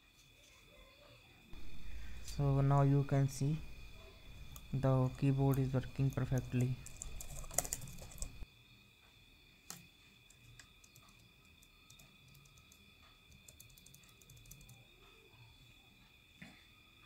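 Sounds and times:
faint high whine: 0.0 - 17.0
laptop keyboard typing: 4.4 - 8.4, 9.7 - 15.3.

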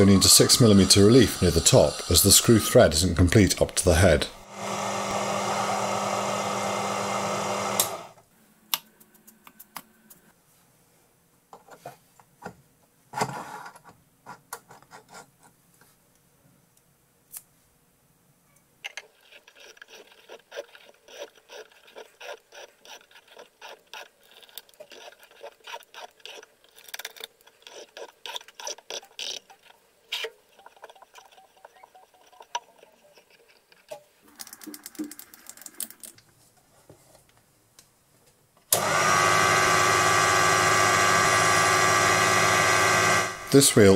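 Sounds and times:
lathe running: 0.0 - 3.1, 4.4 - 8.1, 38.8 - 43.9.

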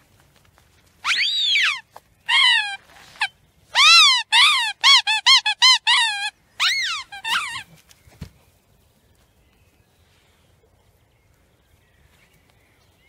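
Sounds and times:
squeaky dog toy squeaking: 1.0 - 7.6.

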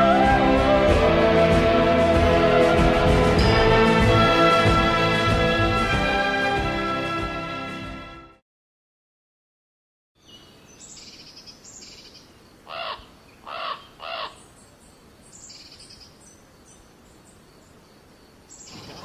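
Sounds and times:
loud bird calls: 10.2 - 19.0
small birds chirping: 10.2 - 19.0.

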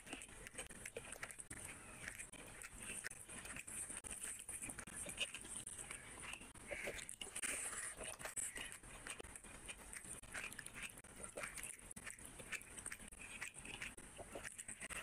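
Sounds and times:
hand mixing rice with curry: 0.0 - 15.0
mouth chewing: 0.0 - 15.0.

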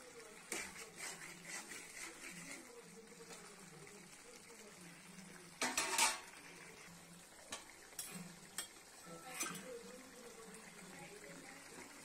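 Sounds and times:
spoon clinking on metal cookware: 5.6 - 6.3, 7.5 - 9.8.

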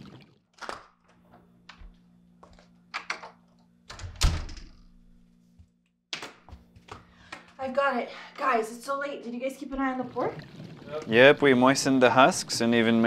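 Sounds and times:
door closing with thump: 3.9 - 4.7.

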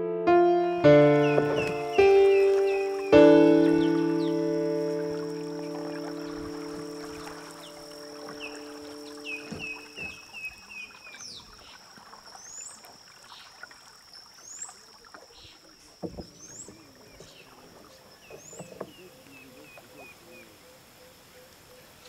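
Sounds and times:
soft water sounds: 0.8 - 22.0
knocks on canoe hull: 9.4 - 10.2.

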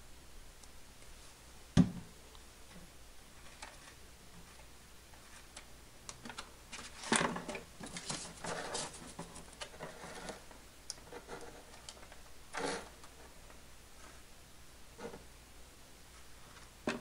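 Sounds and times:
foam parts rustling: 6.3 - 10.5.

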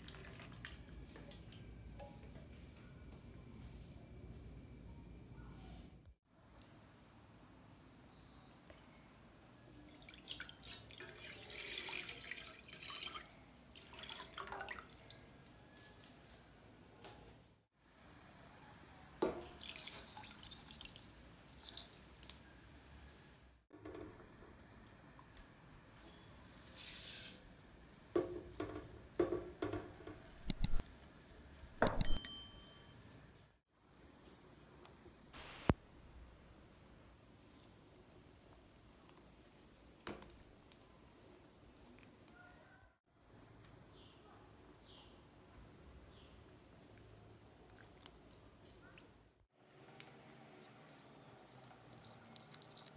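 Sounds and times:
milk pouring into saucepan: 9.8 - 15.2, 19.4 - 22.0
mouse clicks: 30.4 - 30.9
bright bell ding: 31.8 - 33.0.

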